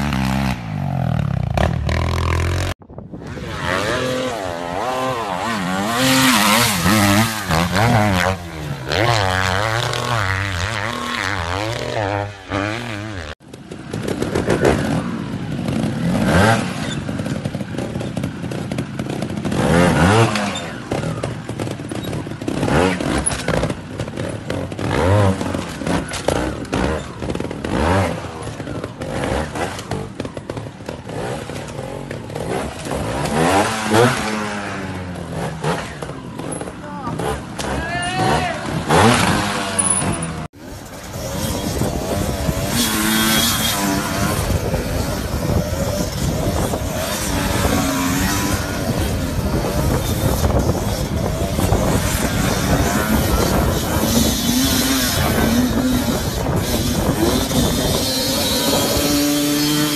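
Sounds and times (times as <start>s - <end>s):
dirt bike engine revving: 0.0s - 59.9s
knocks and clatter: 6.0s - 37.8s.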